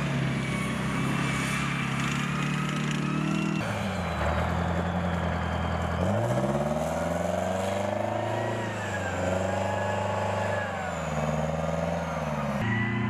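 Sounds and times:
tracked vehicle diesel engine revving: 0.0s - 13.0s.

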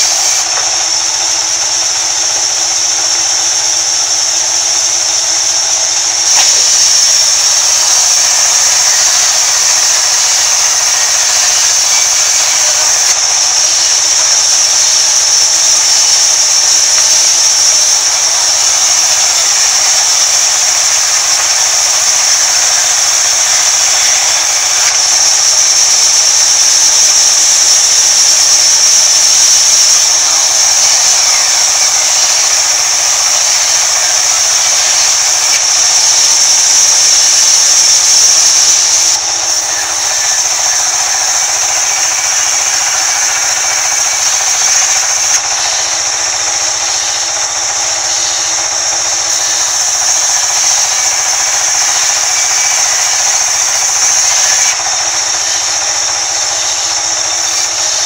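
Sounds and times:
band saw cutting wood: 0.0s - 58.0s.

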